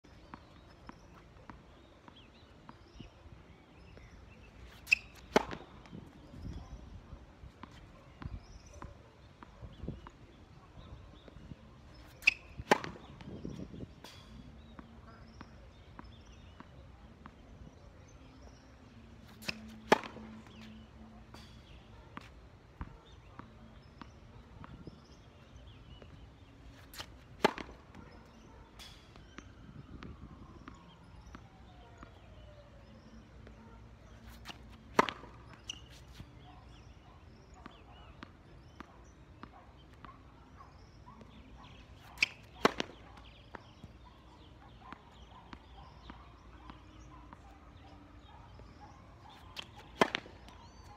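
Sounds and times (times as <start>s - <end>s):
tennis racket striking ball: 4.7s - 6.2s, 12.0s - 14.4s, 19.3s - 20.7s, 26.4s - 27.9s, 34.4s - 36.1s, 42.0s - 43.5s, 49.6s - 50.8s
ball bouncing on hard court: 4.8s - 6.2s, 12.0s - 13.6s, 19.4s - 20.7s, 27.0s - 28.1s, 34.4s - 35.9s, 42.1s - 43.0s, 49.6s - 50.8s.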